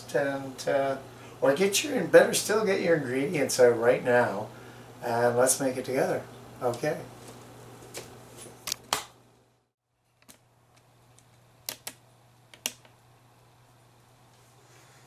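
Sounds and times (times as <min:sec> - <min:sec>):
low steady hum: 0:00.0 - 0:15.0
sharp clicks and knocks: 0:10.1 - 0:13.0.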